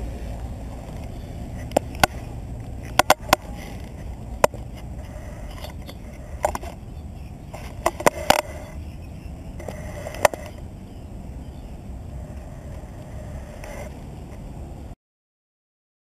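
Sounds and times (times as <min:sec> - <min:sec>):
bike low rumble: 0:00.0 - 0:15.0
bike and mount clicks and knocks: 0:00.9 - 0:04.9.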